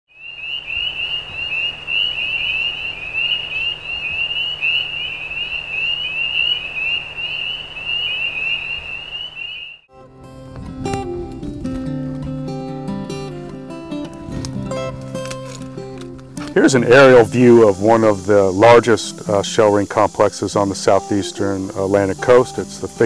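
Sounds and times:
frogs chorus peeping: 0:00.1 - 0:09.8, 0:16.9 - 0:23.0
strummed acoustic guitar music: 0:09.9 - 0:23.0.

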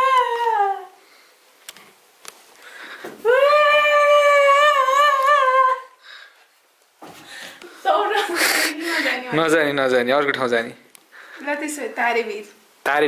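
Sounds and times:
person whining high-pitched: 0:00.0 - 0:01.0, 0:03.2 - 0:06.0.

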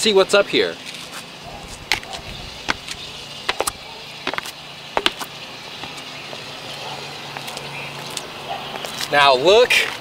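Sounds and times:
steady low hum: 0:00.8 - 0:08.8
footsteps on concrete steps: 0:00.8 - 0:09.2.

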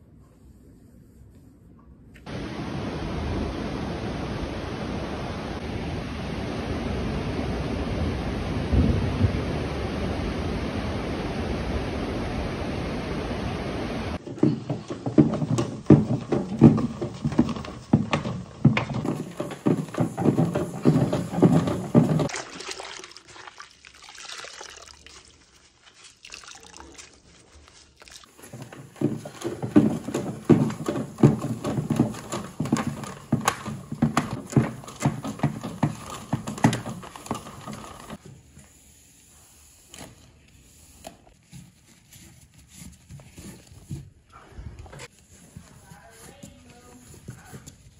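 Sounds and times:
cloth sloshing in soapy water: 0:14.2 - 0:38.2.

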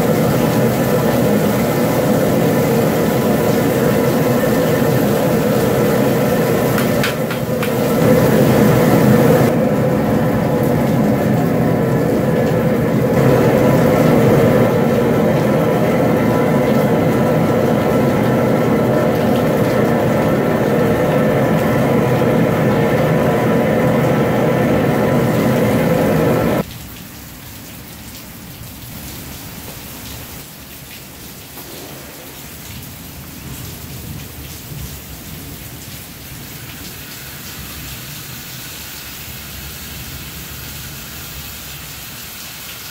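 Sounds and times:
loud rushing noise with hum: 0:00.0 - 0:26.6
water spraying from hose: 0:00.0 - 0:26.7, 0:28.7 - 0:42.9.

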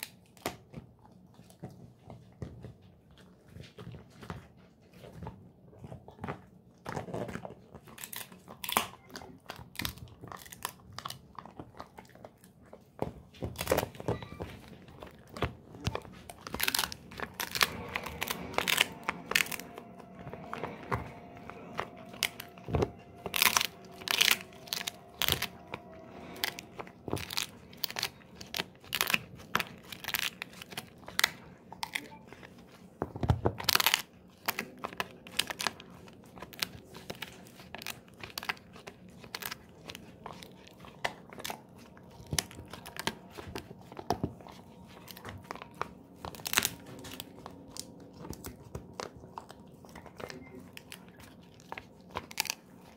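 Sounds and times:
dog chewing crunchy chew: 0:00.0 - 0:52.9.

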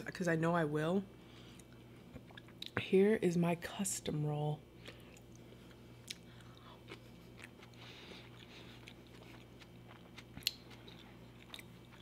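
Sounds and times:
mouth chewing food: 0:04.8 - 0:12.0.

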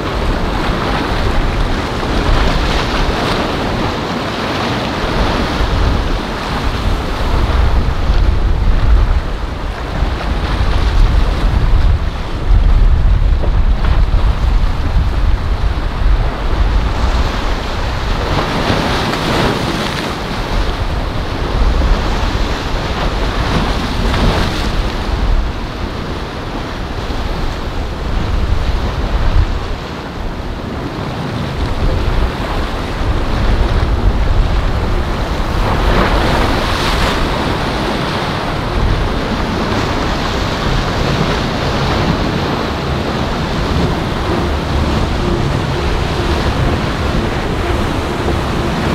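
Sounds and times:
choppy sea rushing: 0:00.0 - 0:48.9
wind buffeting microphone: 0:00.0 - 0:48.9
heavy low rumble: 0:05.6 - 0:18.3, 0:38.5 - 0:48.9.

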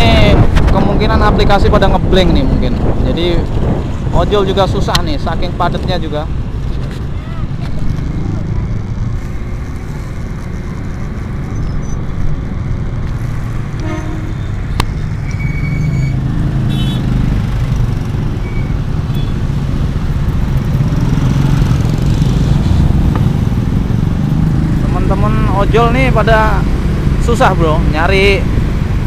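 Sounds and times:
traffic: 0:00.0 - 0:29.0
horn toots: 0:13.8 - 0:14.6, 0:15.4 - 0:17.2
motorcycle engine running: 0:19.5 - 0:27.1.

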